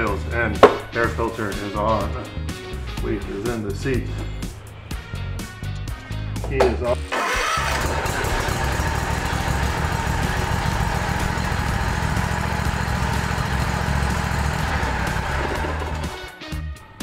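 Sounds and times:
riding mower engine running: 0:07.1 - 0:16.4.

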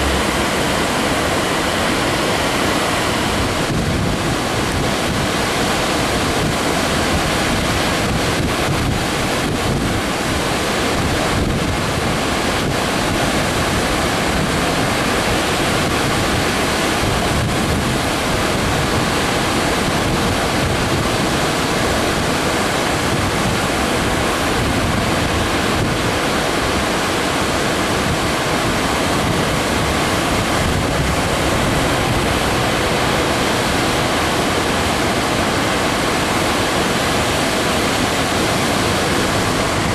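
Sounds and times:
water rushing over dam: 0:00.0 - 0:39.9.

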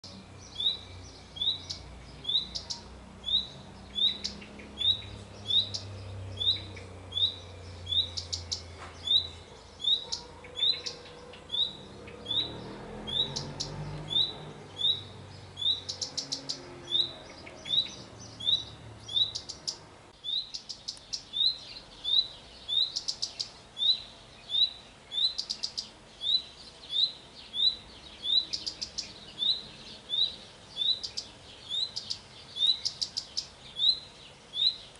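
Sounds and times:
bird dry tic clicks: 0:20.5 - 0:21.3.

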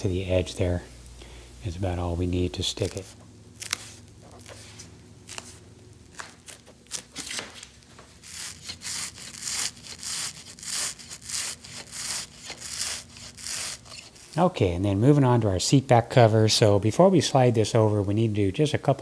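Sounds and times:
rubbing strokes on surface: 0:08.2 - 0:14.4.

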